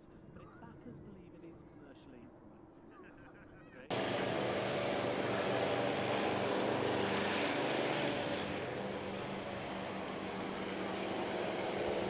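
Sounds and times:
propeller engines droning: 0:03.9 - 0:12.0.

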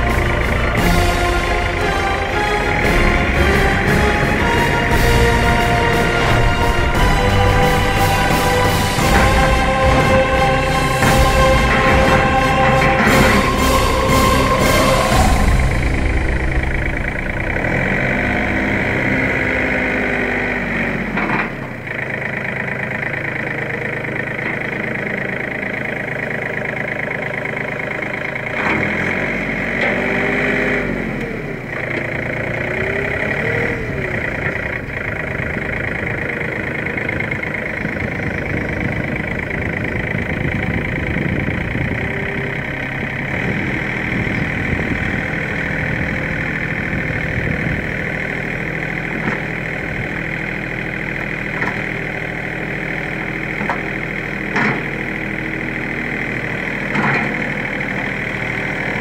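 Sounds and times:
tractor diesel engine running: 0:00.0 - 0:59.0
short clunks: 0:54.5 - 0:55.0.

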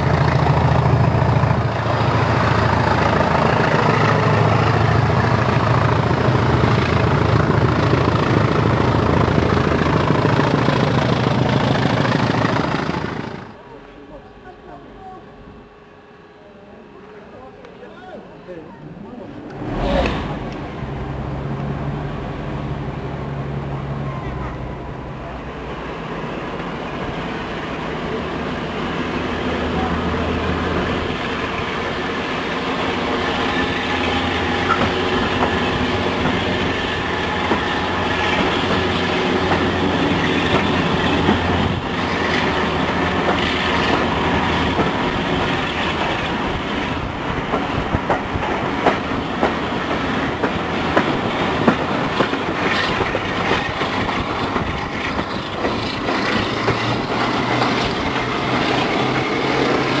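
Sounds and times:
locomotive engine under load: 0:00.0 - 0:13.8, 0:27.6 - 1:00.0
wheels clattering over rail joints: 0:32.9 - 1:00.0.

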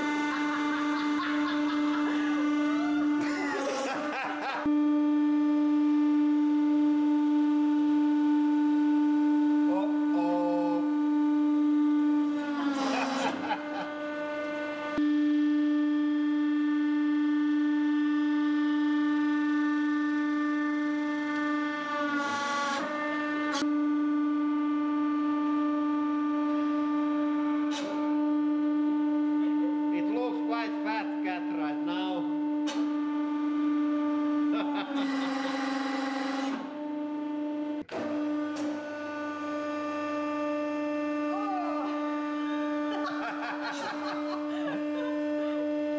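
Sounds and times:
hydraulic pump whining: 0:00.0 - 0:45.9.

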